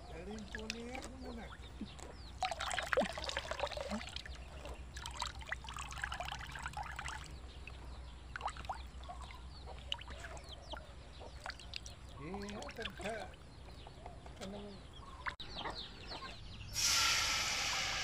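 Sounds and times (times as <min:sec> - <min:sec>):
liquid dripping: 0:02.4 - 0:13.4.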